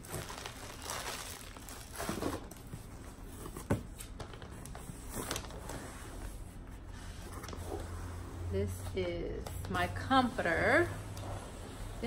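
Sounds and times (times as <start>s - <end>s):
plastic packaging rustling: 0.0s - 6.2s.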